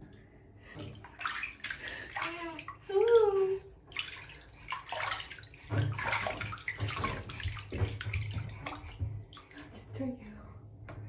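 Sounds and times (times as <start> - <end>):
bathwater splashing in a tub: 0.8 - 10.1.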